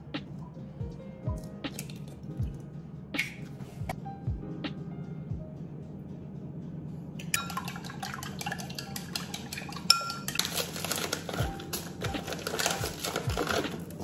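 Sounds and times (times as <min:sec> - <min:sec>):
metal spoon clinking on glass: 0:07.4 - 0:11.1
chopsticks stirring in ceramic bowl: 0:07.6 - 0:14.0.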